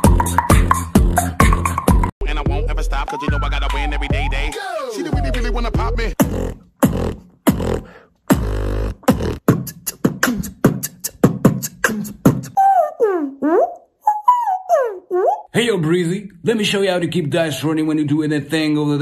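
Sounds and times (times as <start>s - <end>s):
mouth percussive hits: 0.0s - 2.1s, 6.2s - 14.5s
beatboxing bass notes: 0.0s - 4.5s, 5.1s - 14.2s.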